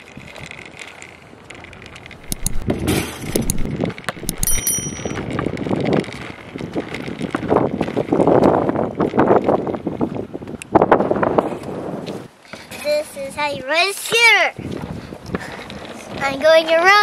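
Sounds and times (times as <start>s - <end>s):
scooter wheels rolling on asphalt: 0.0s - 17.0s
high bell-like ding: 4.2s - 5.2s.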